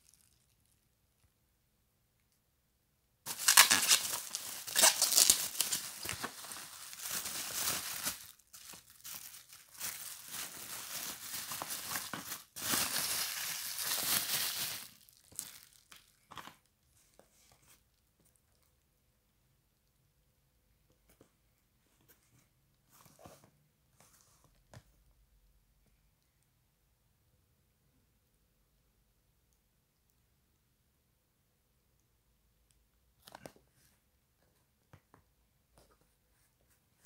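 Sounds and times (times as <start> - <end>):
bubble wrap crinkling: 0.0 - 0.8, 3.3 - 16.3.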